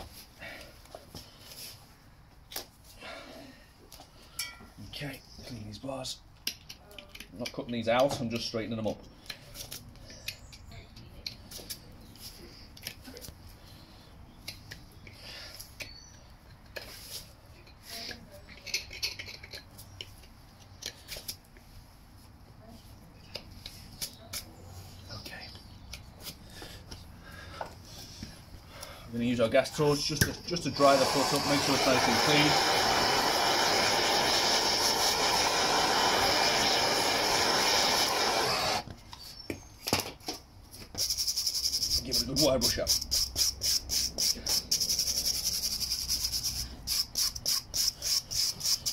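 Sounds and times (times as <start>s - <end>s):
gas torch hissing: 30.5s - 38.9s.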